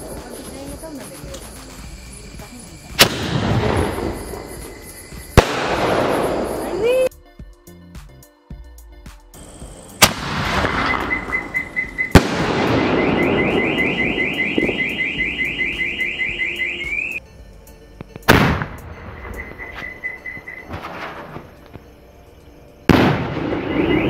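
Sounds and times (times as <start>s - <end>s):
firework bangs: 0.0s - 7.0s, 10.0s - 16.9s, 18.2s - 19.4s, 22.9s - 24.0s
firework crackling: 0.0s - 7.1s, 9.4s - 17.2s, 20.7s - 21.7s
car alarm beeping and warbling: 10.4s - 17.2s, 19.0s - 20.9s, 23.4s - 24.0s.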